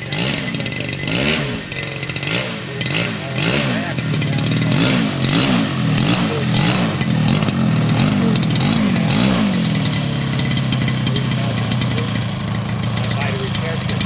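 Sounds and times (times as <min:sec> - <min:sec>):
model plane engine revving: 0:00.0 - 0:14.0.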